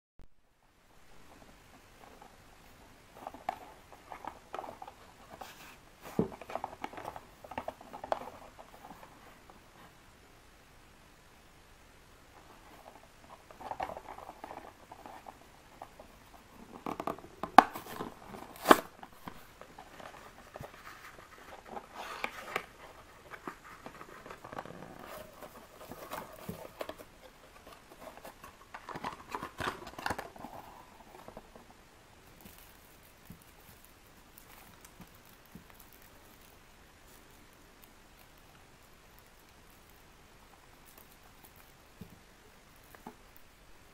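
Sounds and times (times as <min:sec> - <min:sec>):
cardboard tearing and rustling: 0:17.5 - 0:31.5
foil crinkling: 0:17.6 - 0:31.6.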